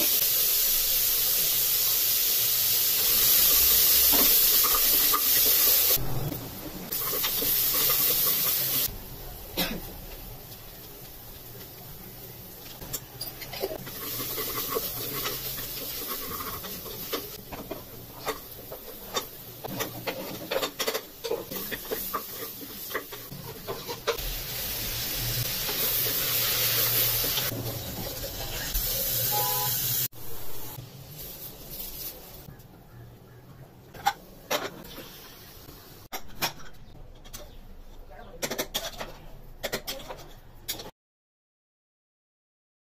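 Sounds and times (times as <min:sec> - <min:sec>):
sizzling hiss: 0:00.0 - 0:32.5
spoon scraping a metal pot: 0:13.2 - 0:18.4, 0:19.1 - 0:24.2.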